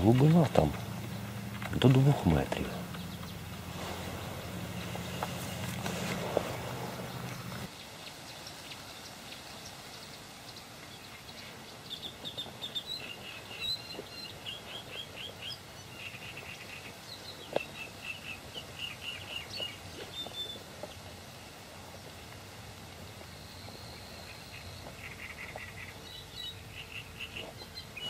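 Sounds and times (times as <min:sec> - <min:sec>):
small bird chirping: 0:00.0 - 0:08.9, 0:23.2 - 0:28.0
faint outdoor hiss: 0:00.0 - 0:28.0.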